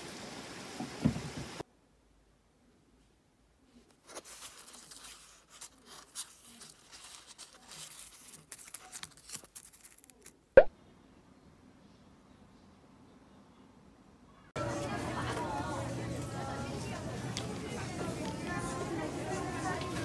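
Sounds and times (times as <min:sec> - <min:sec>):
dry leaves rustling against paper: 0:03.9 - 0:10.4.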